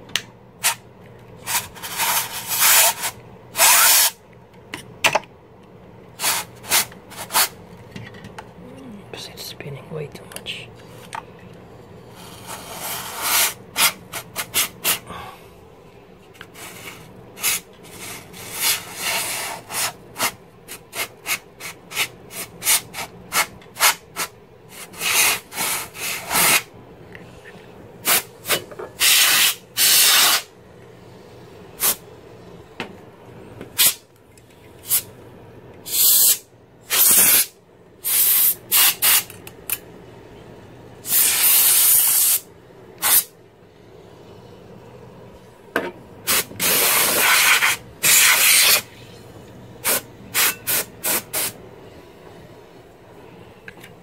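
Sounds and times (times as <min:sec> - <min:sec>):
compressed air hissing: 0:12.0 - 0:15.4, 0:28.0 - 0:30.5, 0:31.8 - 0:32.0, 0:33.8 - 0:34.0, 0:34.8 - 0:35.1, 0:35.8 - 0:39.3, 0:41.0 - 0:43.3, 0:46.2 - 0:49.0, 0:49.8 - 0:51.6.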